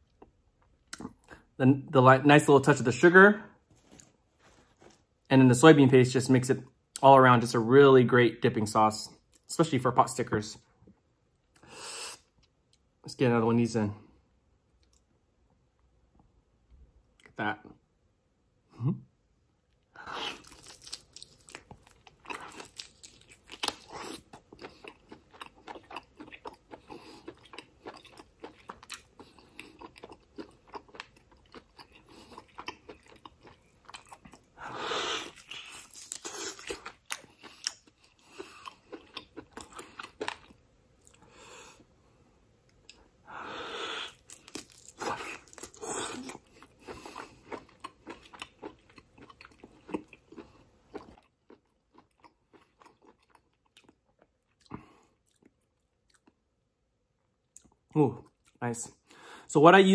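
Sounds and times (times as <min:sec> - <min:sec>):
biting and chewing meat: 0:20.2 - 0:41.3, 0:44.1 - 0:56.4.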